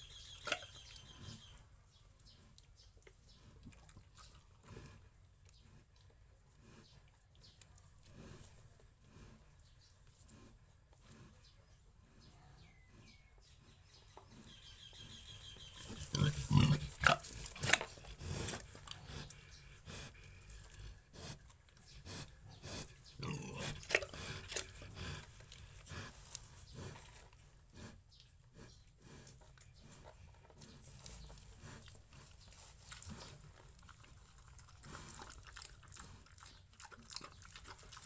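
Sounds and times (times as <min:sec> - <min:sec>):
pigs grunting: 0:14.4 - 0:21.4, 0:22.0 - 0:27.1.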